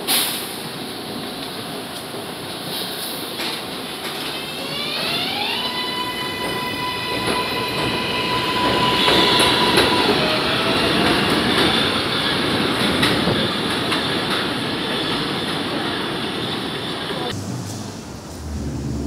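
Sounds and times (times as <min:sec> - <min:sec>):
train wheels rumbling: 0:05.8 - 0:19.0.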